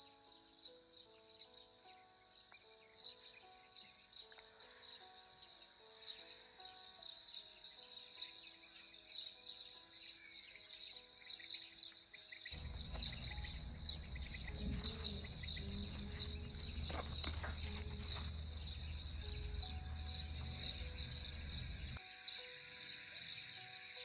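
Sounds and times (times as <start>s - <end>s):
soft sustained music notes: 0.0s - 24.0s
birds chirping: 1.0s - 24.0s
low rumble: 12.6s - 22.0s.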